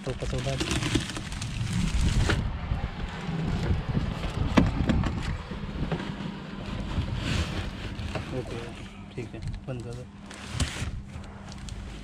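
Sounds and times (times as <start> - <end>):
plastic bag rustling: 0.0 - 2.4, 6.5 - 8.9
wind rumble on microphone: 0.0 - 9.7, 10.5 - 12.0
things being shifted about: 4.3 - 12.0.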